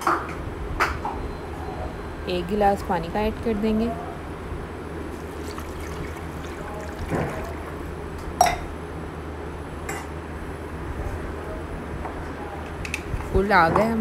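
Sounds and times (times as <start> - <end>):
water pouring into metal pot: 5.1 - 8.0.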